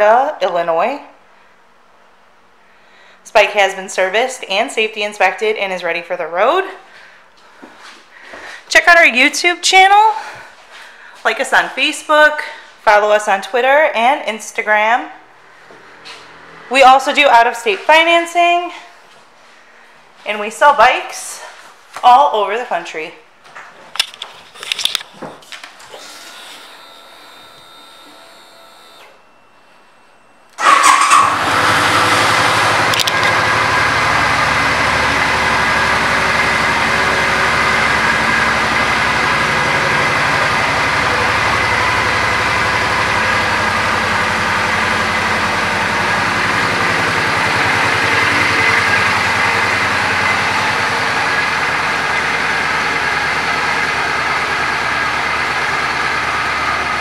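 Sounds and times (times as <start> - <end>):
starter motor whine: 25.8 - 29.4, 30.6 - 57.0
motorcycle engine idling: 32.1 - 57.0.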